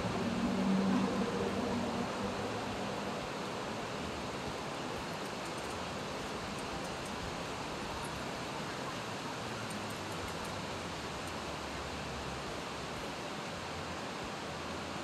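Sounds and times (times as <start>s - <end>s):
river rushing: 0.0s - 15.0s
faint light clicks: 9.6s - 11.5s.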